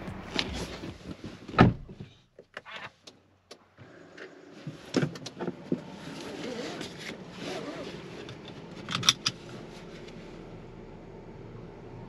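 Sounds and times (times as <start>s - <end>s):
car door thud: 1.5s - 2.1s.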